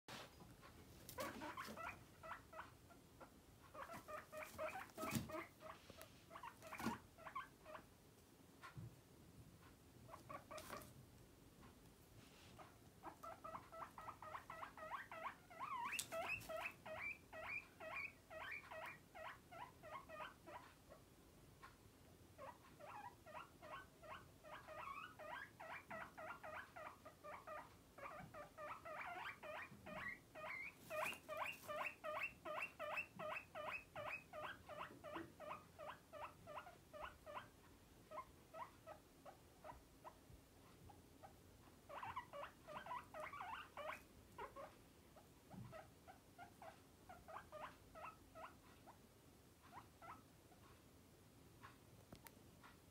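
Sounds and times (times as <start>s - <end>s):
guinea pig wheeking: 0.1s - 8.0s, 8.6s - 8.9s, 9.6s - 11.0s, 12.4s - 50.8s.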